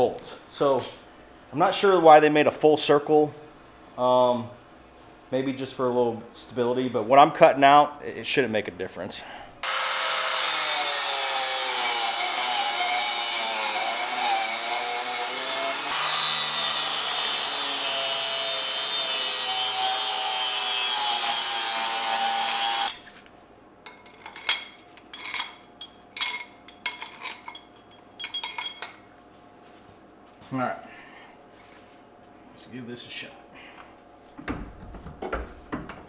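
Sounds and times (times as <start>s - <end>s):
angle grinder cutting metal: 9.6s - 23.0s
light metallic clinks and knocks: 23.8s - 29.1s.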